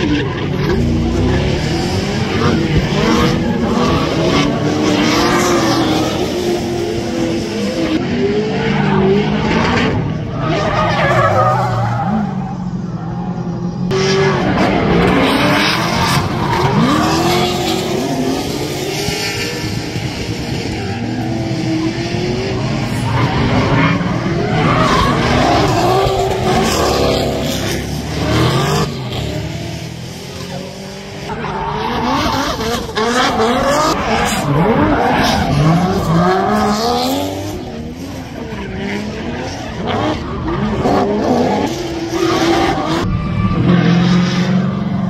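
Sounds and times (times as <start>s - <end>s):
car engines revving: 0.0s - 45.0s
tyres squealing and skidding: 10.1s - 18.8s, 19.6s - 29.5s, 30.2s - 37.3s, 39.3s - 45.0s.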